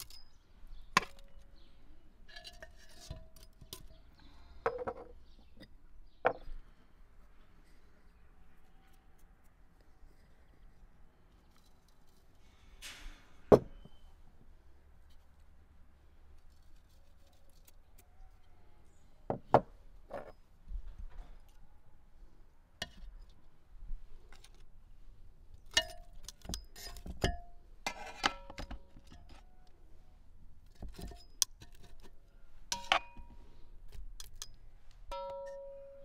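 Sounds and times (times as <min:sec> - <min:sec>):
metal tongs knocking on pot: 0:35.1 - 0:36.0.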